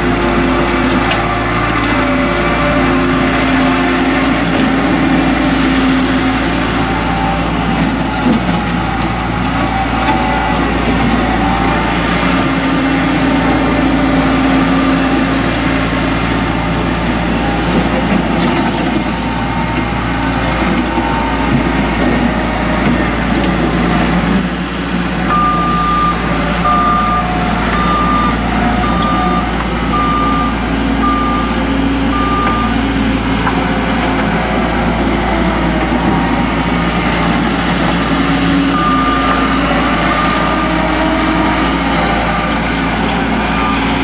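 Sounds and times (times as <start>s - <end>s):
diesel engine running: 0.0s - 44.0s
backup alarm beeping: 25.2s - 33.2s, 38.5s - 44.0s.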